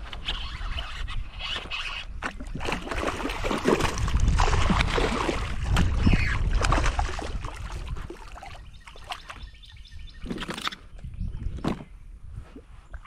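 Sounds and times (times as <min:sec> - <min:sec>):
fish thrashing and splashing: 0:01.5 - 0:09.2.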